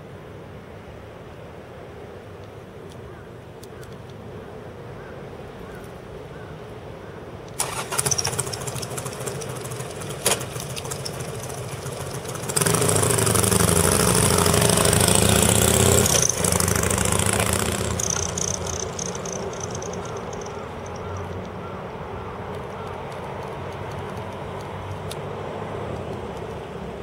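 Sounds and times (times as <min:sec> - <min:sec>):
motorcycle engine running: 0:07.6 - 0:21.4.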